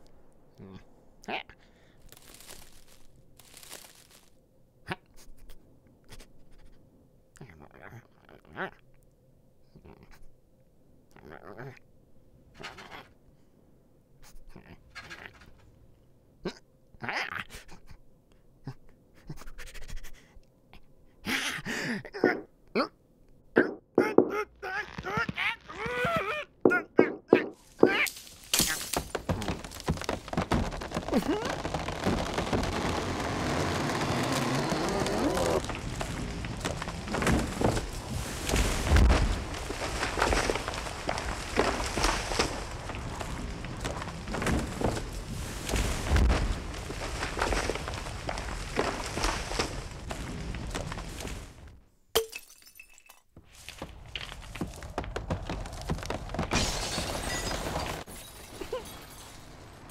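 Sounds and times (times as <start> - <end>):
ice crackling and creaking: 1.7 - 4.4, 24.3 - 26.8, 27.6 - 51.8, 53.5 - 59.9
ice cracking knocks: 2.1 - 4.3, 27.6 - 51.7, 53.6 - 58.4.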